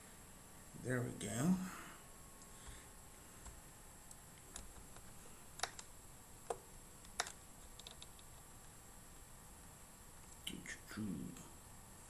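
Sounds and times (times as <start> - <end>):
low steady hiss: 0.0 - 12.0
computer key clicks: 5.6 - 5.9, 6.5 - 8.3.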